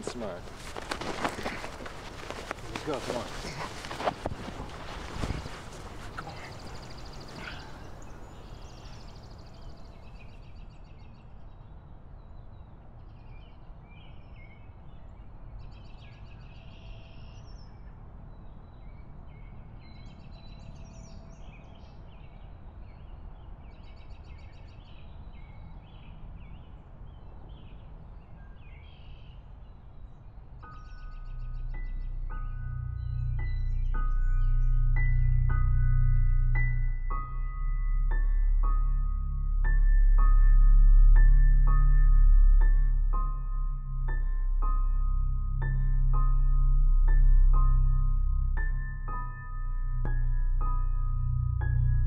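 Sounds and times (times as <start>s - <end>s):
small birds chirping and trilling: 0.0s - 17.8s
low rumble: 31.4s - 52.0s.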